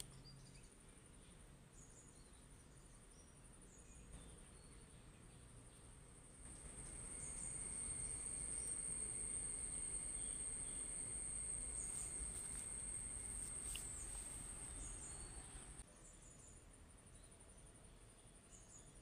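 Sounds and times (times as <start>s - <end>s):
high-pitched insect trill: 6.0s - 15.8s.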